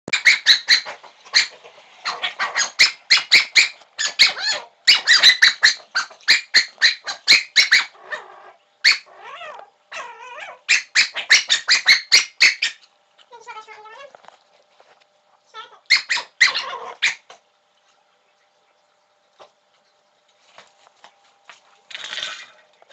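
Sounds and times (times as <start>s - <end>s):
dog barking: 0.1s - 9.1s, 15.9s - 17.2s.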